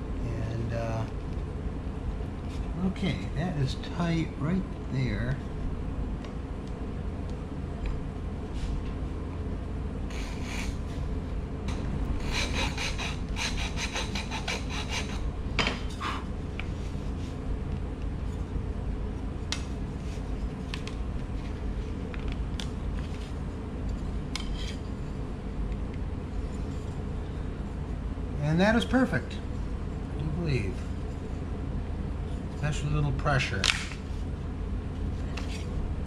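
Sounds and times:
hand file scraping wood: 10.1s - 10.8s, 12.2s - 15.2s.

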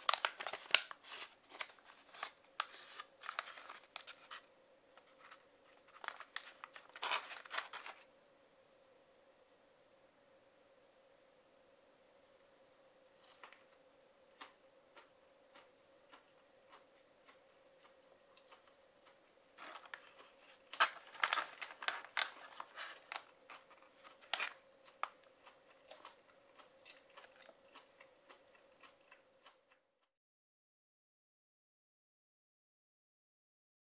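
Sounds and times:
snack pouch crinkling: 0.0s - 8.1s, 14.4s - 29.6s
faint steady hum: 0.0s - 30.1s
chewing clicks: 14.4s - 19.2s, 24.8s - 29.8s.

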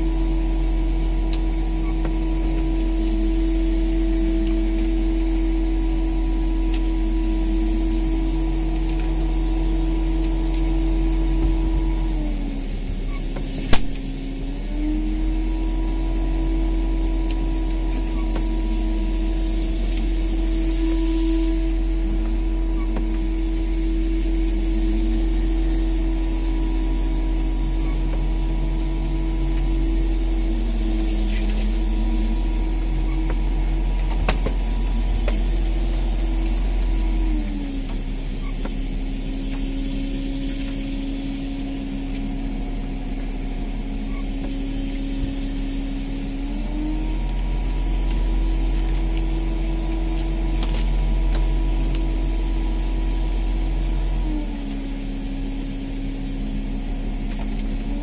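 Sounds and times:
boat engine running: 0.0s - 58.0s
sharp click: 13.7s - 14.1s.

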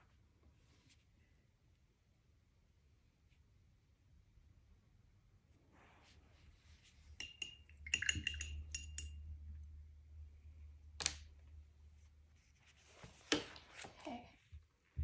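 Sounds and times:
object tapping against glass: 7.2s - 9.2s.

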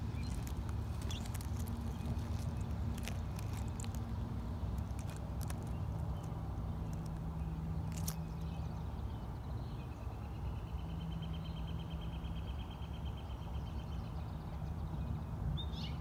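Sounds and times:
bird chirp: 0.0s - 3.9s.

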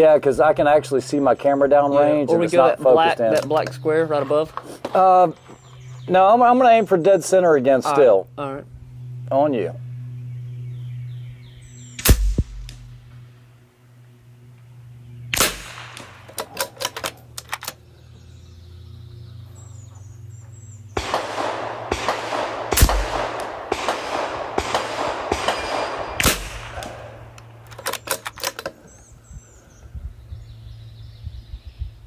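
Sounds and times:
rifle shots: 12.0s - 12.9s, 15.3s - 17.7s, 21.0s - 28.5s
rifle action clicks: 15.4s - 17.8s, 26.2s - 28.8s.

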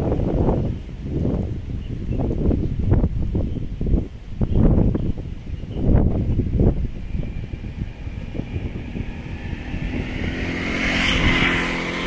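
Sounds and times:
vehicle passing by: 6.0s - 12.0s.

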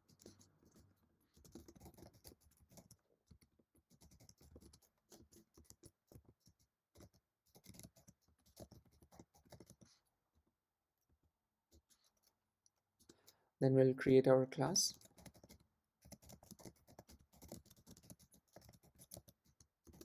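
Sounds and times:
keyboard typing: 1.4s - 9.9s, 14.9s - 20.0s.

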